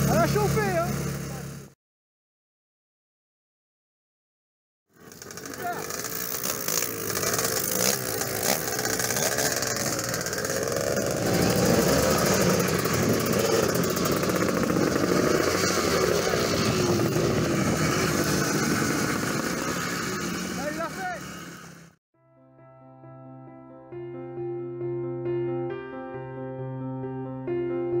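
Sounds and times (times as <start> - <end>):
motorcycle engines idling and revving: 0.0 - 1.8, 4.9 - 22.0.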